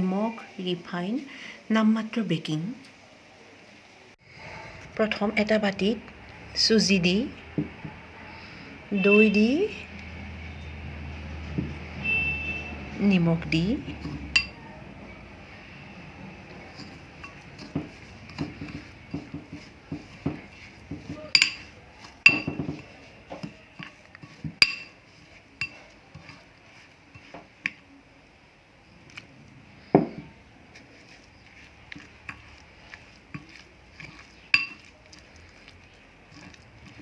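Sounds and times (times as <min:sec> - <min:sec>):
spoon clinking against glass bowl: 0:14.0 - 0:14.6, 0:16.8 - 0:25.0, 0:25.6 - 0:26.4, 0:32.2 - 0:34.9.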